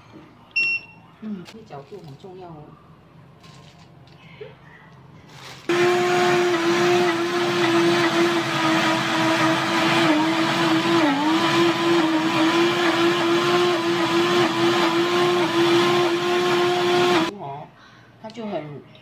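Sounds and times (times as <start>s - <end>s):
blender grinding almonds: 5.7s - 17.3s.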